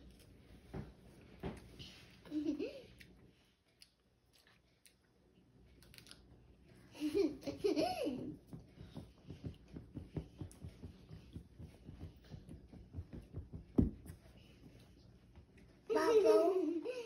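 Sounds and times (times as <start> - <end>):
soft regular thumps: 8.2 - 14.7.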